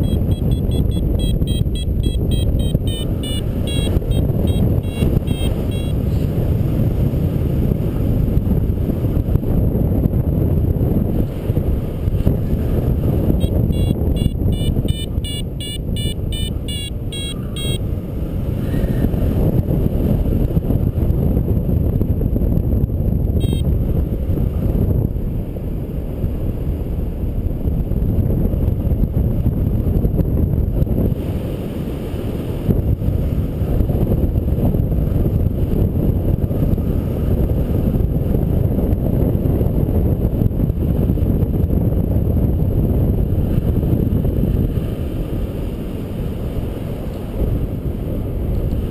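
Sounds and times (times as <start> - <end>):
rapid high beeps: 0.0 - 6.0, 13.4 - 17.8, 23.4 - 23.6
wind rushing over microphone: 0.0 - 48.9.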